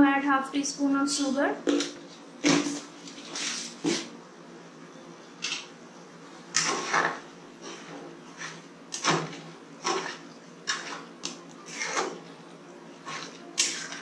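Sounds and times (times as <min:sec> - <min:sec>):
metal ladle scraping pan: 0:06.5 - 0:12.2, 0:13.0 - 0:14.0.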